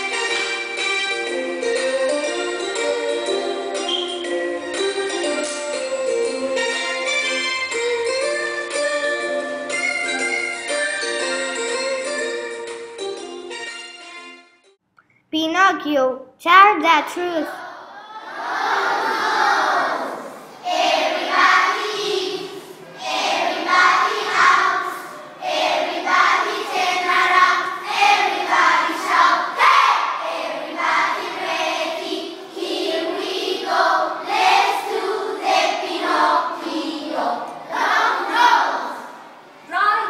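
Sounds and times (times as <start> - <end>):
children singing together: 17.5 - 39.4.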